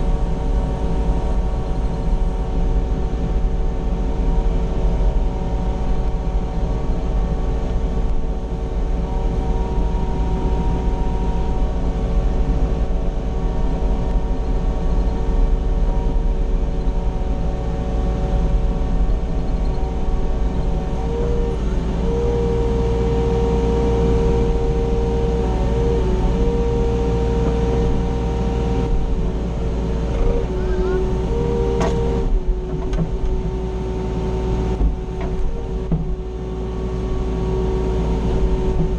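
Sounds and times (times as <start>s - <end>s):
excavator diesel engine humming: 0.0s - 38.9s.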